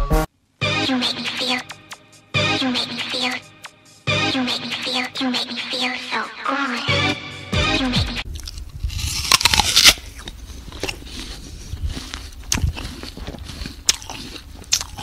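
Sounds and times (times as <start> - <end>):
snail crunching food: 8.2 - 15.0.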